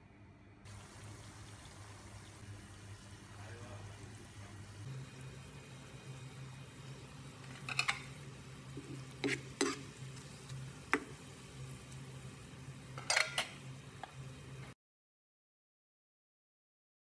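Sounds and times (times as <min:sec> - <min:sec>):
food sizzling in oil: 0:00.7 - 0:14.8
utensil clinking and scraping pan: 0:07.4 - 0:10.6, 0:13.0 - 0:13.6.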